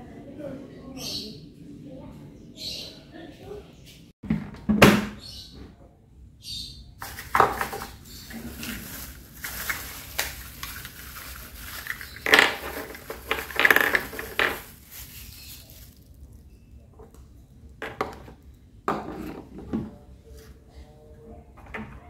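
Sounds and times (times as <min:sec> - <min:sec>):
plastic wrapping crinkling: 0:07.0 - 0:16.6.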